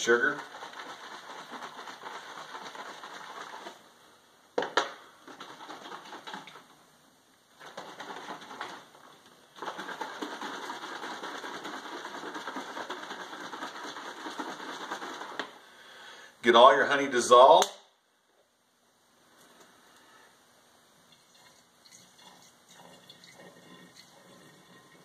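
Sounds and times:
liquid sloshing in plastic bottle: 0:09.6 - 0:15.5.

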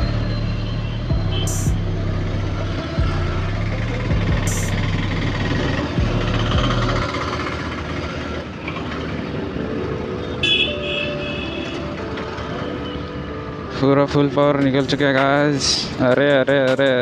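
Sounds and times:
busy street traffic: 0:00.0 - 0:17.0
vehicle horn beeps: 0:00.3 - 0:01.9, 0:10.4 - 0:12.0.

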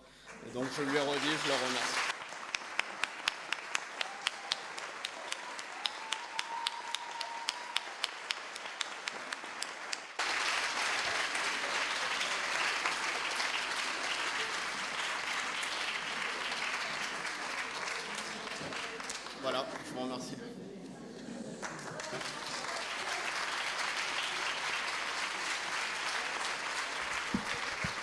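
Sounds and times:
audience applauding: 0:00.0 - 0:20.2, 0:21.5 - 0:28.0
sharp close claps: 0:26.7 - 0:28.0.

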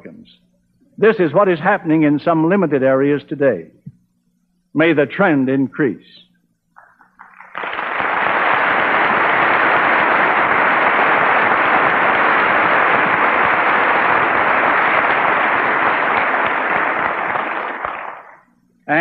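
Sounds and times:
audience applauding: 0:06.8 - 0:18.4.

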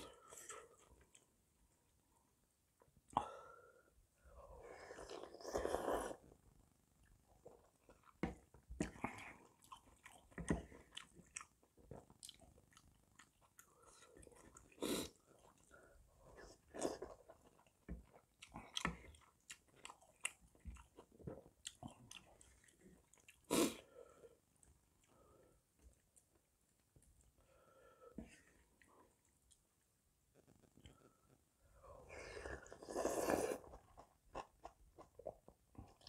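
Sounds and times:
wet chewing and mouth smacks: 0:08.8 - 0:14.8.

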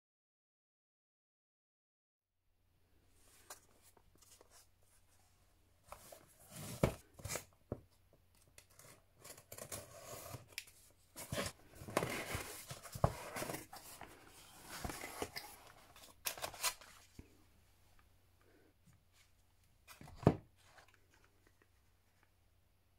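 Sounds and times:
cardboard scraping and tearing: 0:08.7 - 0:10.5, 0:11.2 - 0:17.0.

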